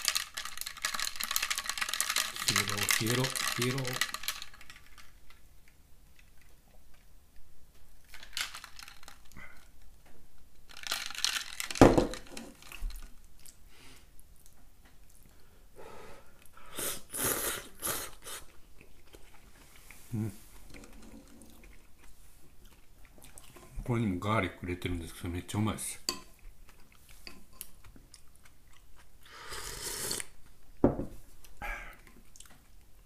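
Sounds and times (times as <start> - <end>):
person slurping noodles: 16.7 - 18.5, 29.2 - 30.4.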